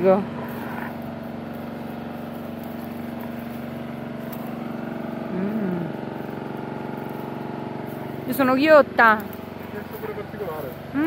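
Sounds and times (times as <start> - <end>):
steady motor drone: 0.0 - 11.0
person humming: 5.3 - 6.0.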